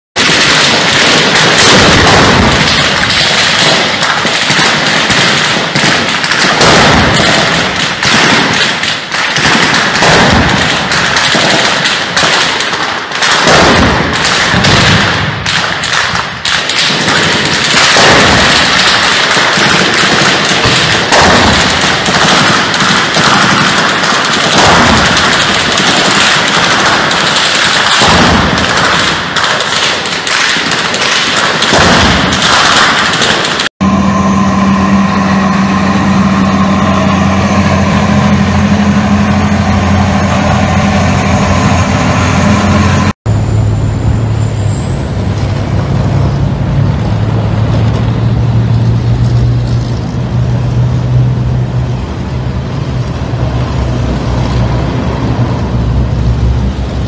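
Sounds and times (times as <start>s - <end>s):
gunfire bangs: 0.2s - 43.1s.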